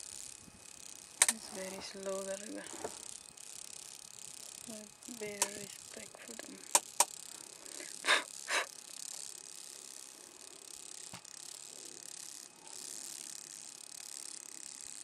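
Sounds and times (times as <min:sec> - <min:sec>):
steady high hiss: 0:00.0 - 0:15.0
sharp click: 0:01.2 - 0:01.4, 0:06.7 - 0:07.2.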